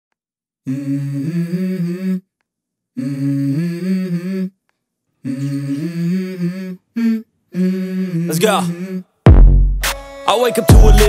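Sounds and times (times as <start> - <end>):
person humming a melody: 0.6 - 2.3, 3.0 - 4.6, 5.2 - 9.2.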